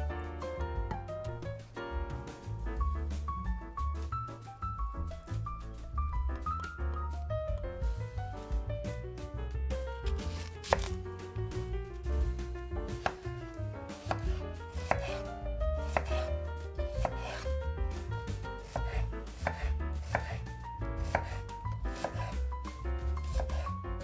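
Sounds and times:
knife chopping on cutting board: 0:10.0 - 0:11.7, 0:12.3 - 0:24.0.

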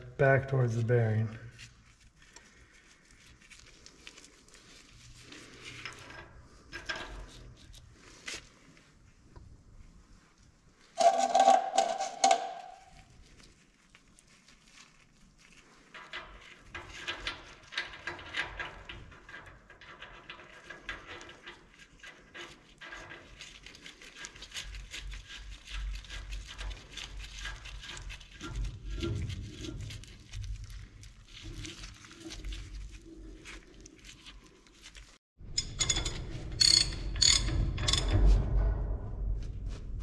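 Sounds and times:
bearing parts clicking and rattling: 0:11.0 - 0:13.0, 0:15.9 - 0:23.7, 0:35.4 - 0:39.4.

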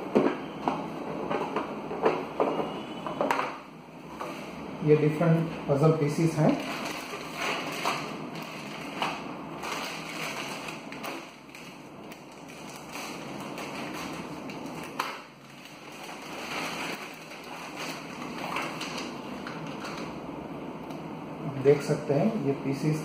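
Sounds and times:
plastic bag crinkling: 0:06.4 - 0:20.1.

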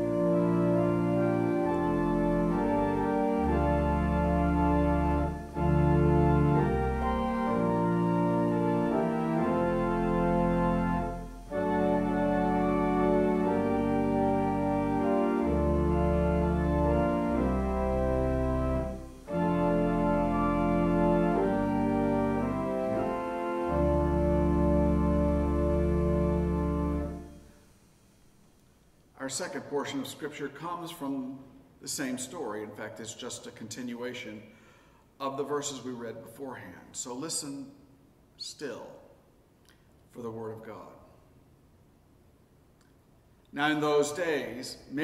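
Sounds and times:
church organ chords: 0:00.0 - 0:27.7, 0:43.5 - 0:45.0.

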